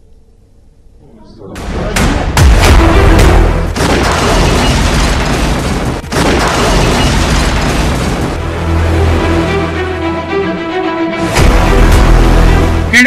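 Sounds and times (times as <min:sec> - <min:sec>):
loud explosion blasts: 0:01.6 - 0:08.5.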